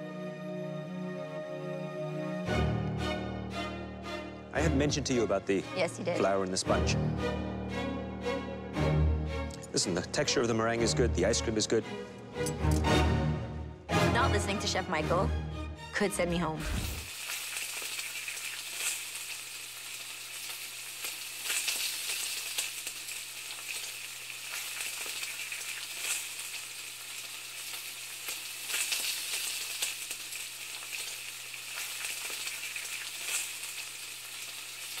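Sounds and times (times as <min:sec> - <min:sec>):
sizzling hiss with crackles: 0:16.7 - 0:35.0.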